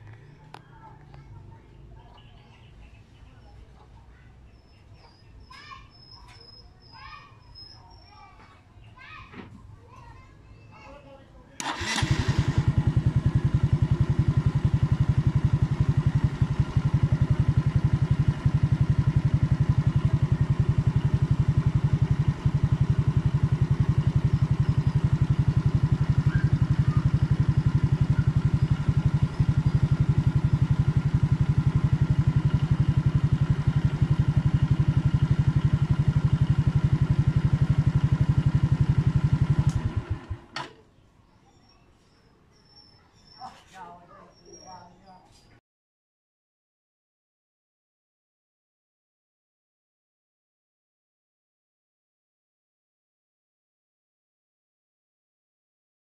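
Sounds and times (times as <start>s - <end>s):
motorcycle engine idling: 0.0s - 4.0s, 11.6s - 40.6s.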